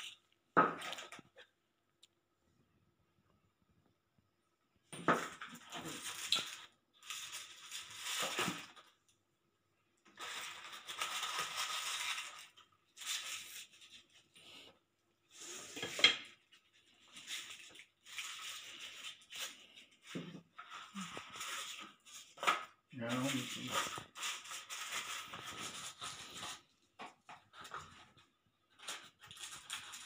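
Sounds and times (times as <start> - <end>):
cardboard and paper rustling: 5.1 - 9.0, 10.1 - 14.6, 16.2 - 30.0.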